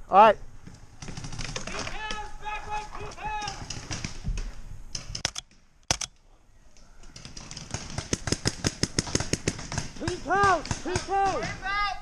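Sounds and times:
paintball markers firing: 0:03.4 - 0:06.1, 0:07.1 - 0:11.5.

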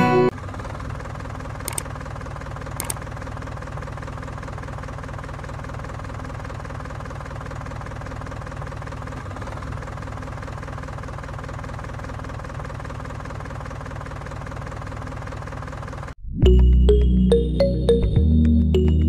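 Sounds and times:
tractor engine chugging: 0:00.0 - 0:16.2
faint short clicks: 0:01.7 - 0:01.9, 0:02.8 - 0:03.0.

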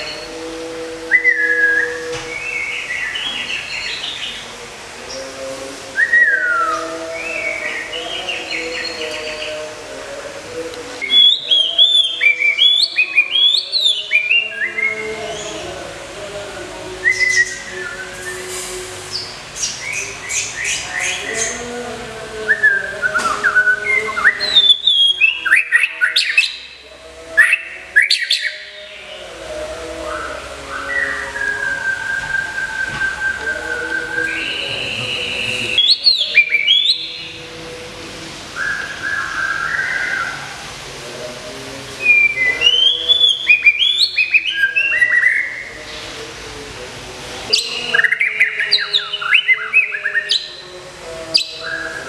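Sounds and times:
bird singing whistled notes: 0:06.0 - 0:09.5, 0:11.0 - 0:15.0, 0:22.5 - 0:26.7, 0:27.5 - 0:28.7, 0:30.8 - 0:37.4, 0:42.0 - 0:45.7.

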